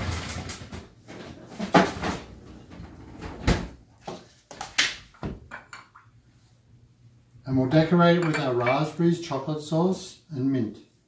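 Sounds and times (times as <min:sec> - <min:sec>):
fridge door opening and shutting: 0:00.0 - 0:03.8.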